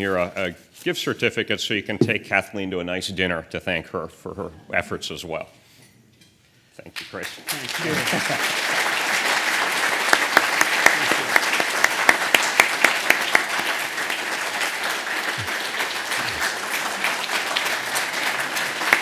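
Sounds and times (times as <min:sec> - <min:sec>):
audience applauding: 0:07.2 - 0:19.0.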